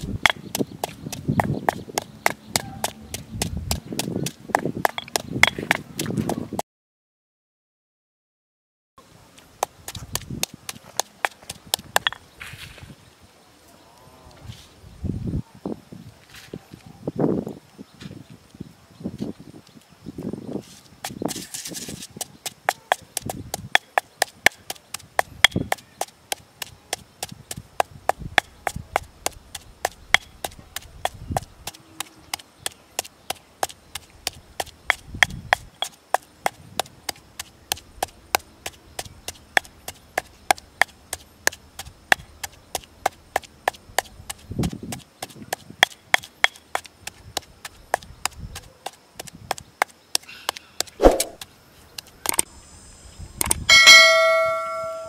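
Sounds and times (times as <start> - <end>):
stone pestle knocking in mortar: 0.3 - 5.8, 22.6 - 25.8.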